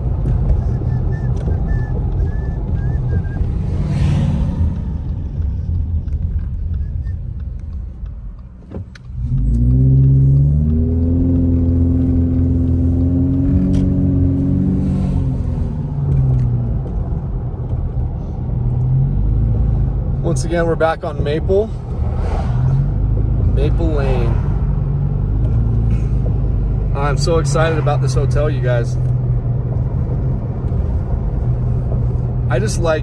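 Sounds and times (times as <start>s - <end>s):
car engine: 0.0s - 33.0s
road noise: 0.0s - 33.0s.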